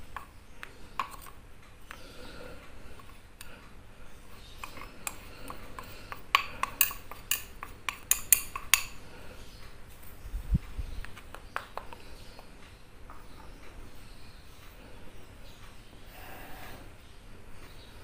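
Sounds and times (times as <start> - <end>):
metal spoon clinking on glass bowl: 6.4 - 9.0.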